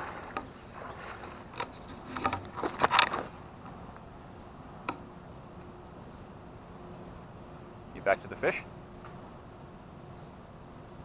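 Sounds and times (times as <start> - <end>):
rustles and scrapes: 0.0 - 3.8.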